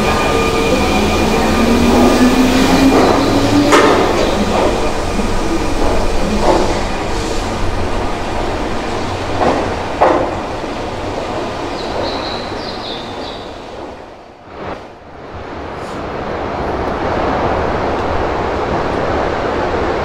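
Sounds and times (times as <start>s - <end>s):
electric train rumbling: 0.0s - 20.0s
sharp knocks: 9.3s - 10.6s.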